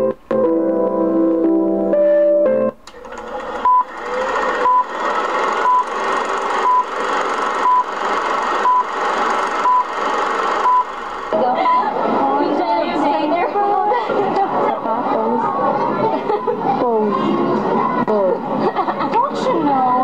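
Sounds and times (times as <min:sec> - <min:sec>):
short countdown beeps: 0:05.6 - 0:05.9, 0:06.6 - 0:06.9, 0:07.6 - 0:07.9, 0:08.6 - 0:08.9, 0:09.6 - 0:09.9, 0:10.6 - 0:10.9.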